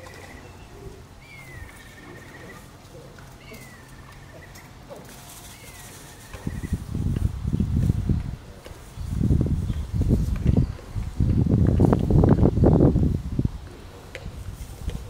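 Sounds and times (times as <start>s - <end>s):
animal call with trill: 0.0s - 2.7s.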